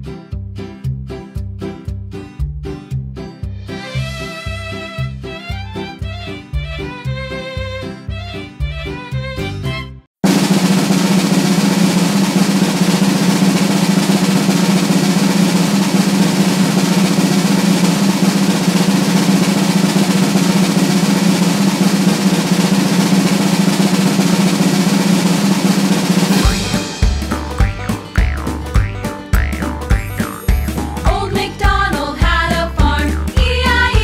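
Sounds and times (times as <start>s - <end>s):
snare drum roll: 10.2s - 34.0s
upbeat music with bouncing bass: 26.3s - 34.0s.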